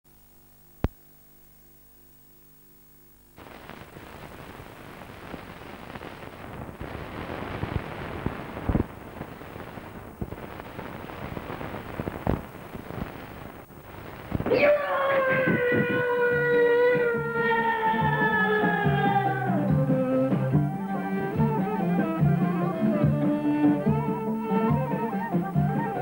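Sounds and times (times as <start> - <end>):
crackles: 0.1 - 16.9
faint electrical hum: 0.1 - 18.8
loud static hiss: 0.1 - 26.0.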